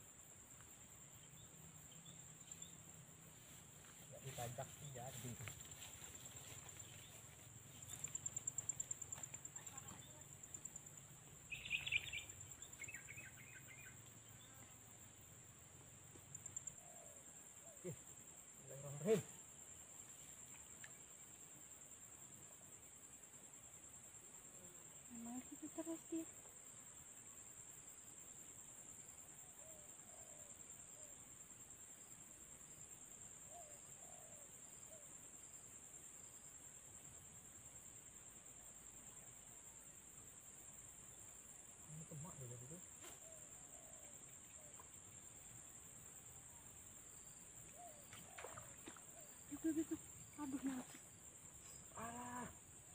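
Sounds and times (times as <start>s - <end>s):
insect pulsing trill: 0.0s - 52.9s
bird chirps: 11.5s - 14.1s.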